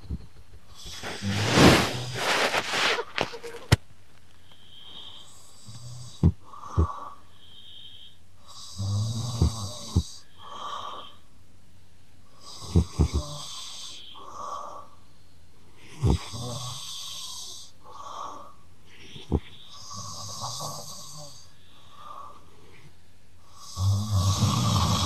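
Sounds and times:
man snoring: 0.8s - 2.3s, 5.0s - 7.1s, 8.5s - 11.1s, 12.4s - 14.2s, 16.0s - 17.7s, 19.2s - 21.5s, 23.5s - 25.0s
cat snoring: 0.8s - 2.8s, 5.0s - 7.0s, 8.5s - 10.2s, 12.4s - 14.1s, 15.9s - 17.7s, 19.3s - 21.5s, 23.5s - 25.0s.

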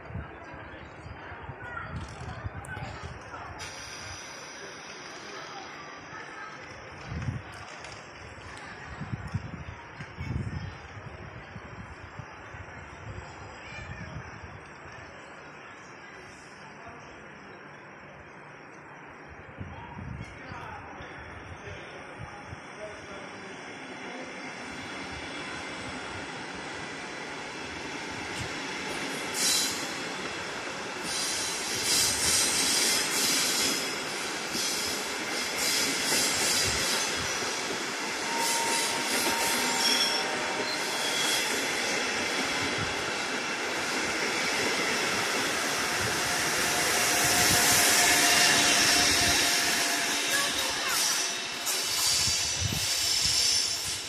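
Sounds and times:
passenger train rolling past: 0.0s - 54.0s
electric locomotive passing: 0.1s - 54.0s
train wheels squealing on rails: 3.6s - 6.5s, 18.3s - 54.0s.

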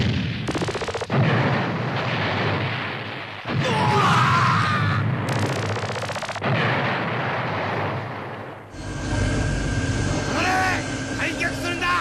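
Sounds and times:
rapid crackling: 0.0s - 3.6s, 5.0s - 12.0s
cartoon explosion effects: 1.1s - 8.2s
low mechanical hum: 8.7s - 12.0s.

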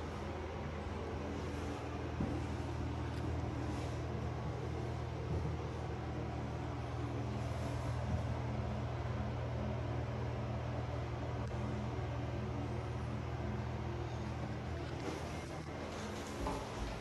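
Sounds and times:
low droning hum: 0.0s - 17.0s.

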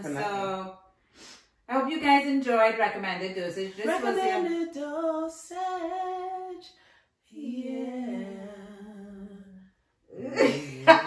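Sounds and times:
people talking: 0.0s - 0.7s, 1.7s - 6.6s, 7.4s - 8.8s, 10.2s - 11.0s
women humming: 3.8s - 4.6s
laughter: 10.4s - 11.0s.

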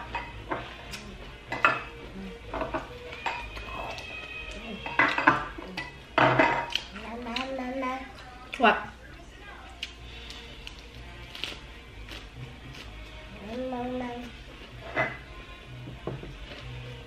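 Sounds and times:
chewing crunches: 9.8s - 13.3s.

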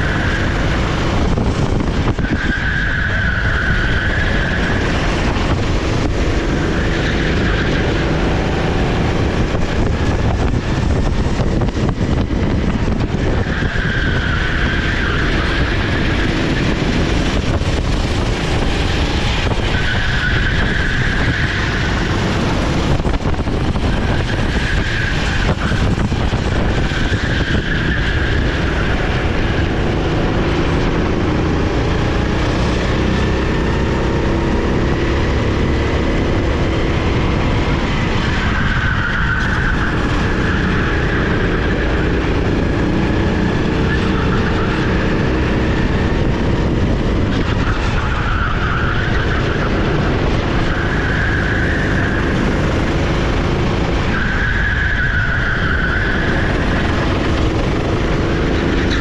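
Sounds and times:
kart engine revving: 0.0s - 59.0s
tyres squealing: 2.1s - 5.6s, 47.2s - 59.0s.

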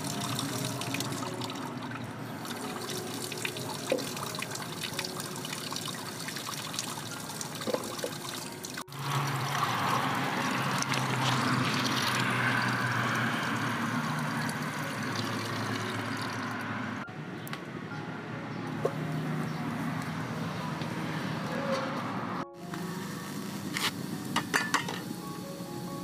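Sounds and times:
water pouring into metal pot: 0.0s - 16.7s.

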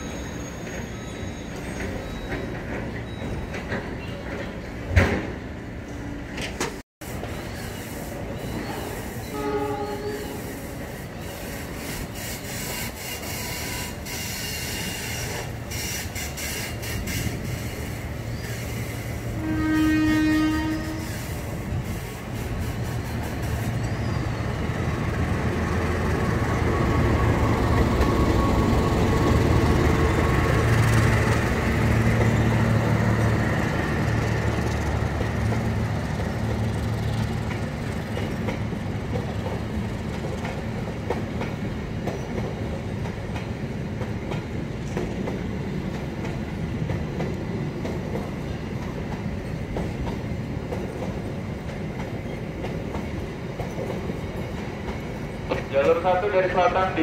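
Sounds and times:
diesel locomotive engine drone: 0.0s - 57.0s
train coaches rumbling past: 0.0s - 57.0s
clickety-clack of train wheels: 0.5s - 5.4s, 11.3s - 24.0s, 33.1s - 57.0s.

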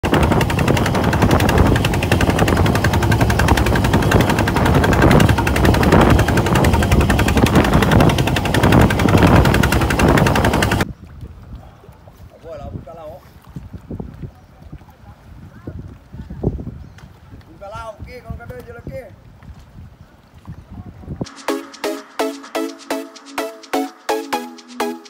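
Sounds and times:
boat engine pounding: 0.0s - 10.8s
water noise: 0.0s - 16.2s
wind: 0.0s - 21.4s.

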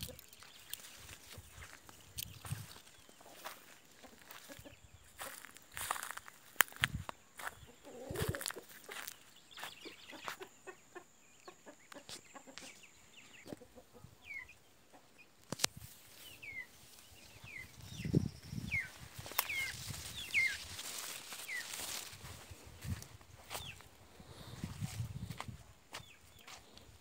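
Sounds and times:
footsteps on dry leaves: 0.0s - 10.4s, 18.5s - 26.9s
chickens chirping: 0.0s - 27.0s.

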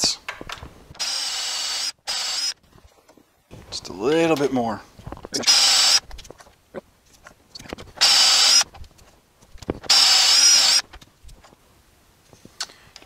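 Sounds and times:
cordless drill whining: 1.0s - 2.6s, 5.4s - 6.0s, 8.0s - 8.7s, 9.9s - 10.9s.

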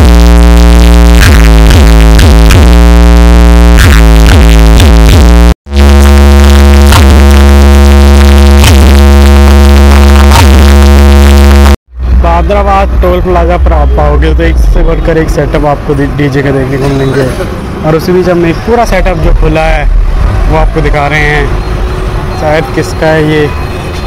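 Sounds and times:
electronic dance music: 0.0s - 11.8s.

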